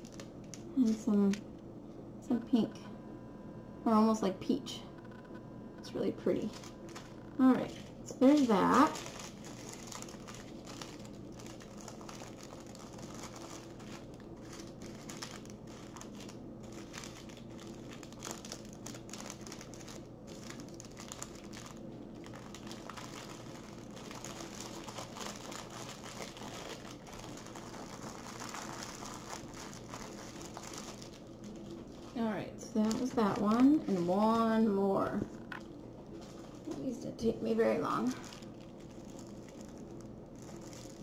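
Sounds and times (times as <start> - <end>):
plastic bags crinkling: 0.0 - 1.4, 6.4 - 41.0
steady low hum: 0.0 - 41.0.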